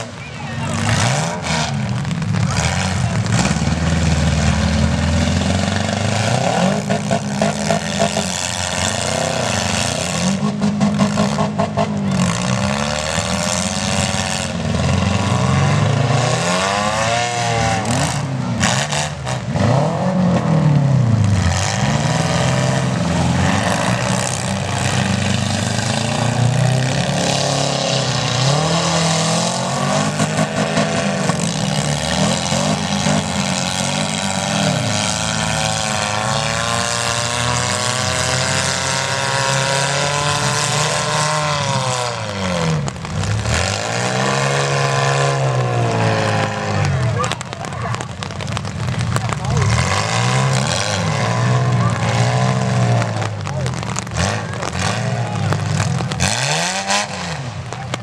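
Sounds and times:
car engines revving: 0.0 - 58.0
car impact crunch: 45.5 - 58.0.

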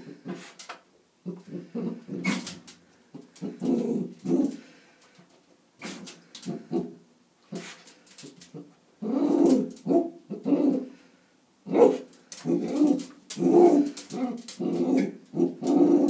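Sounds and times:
dog barking and grumbling: 3.4 - 4.6, 8.6 - 10.9, 11.6 - 16.0.

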